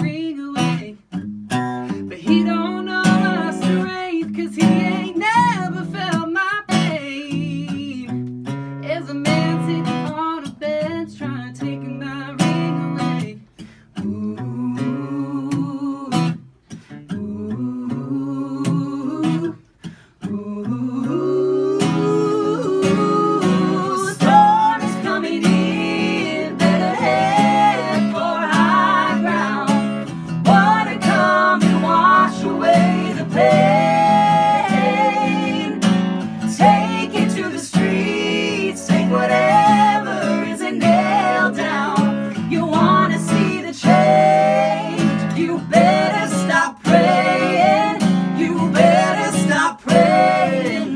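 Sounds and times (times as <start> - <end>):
woman and men singing in harmony: 2.0 - 8.0, 14.0 - 16.4, 17.1 - 19.6, 20.2 - 50.9
acoustic guitar strumming chords: 21.8 - 50.9.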